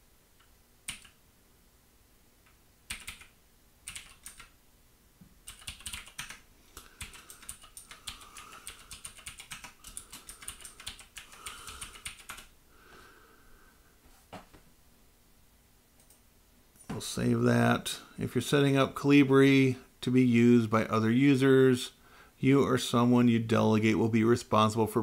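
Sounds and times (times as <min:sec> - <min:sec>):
typing on a keyboard: 0:00.9 - 0:01.2, 0:02.9 - 0:04.5, 0:05.4 - 0:12.5.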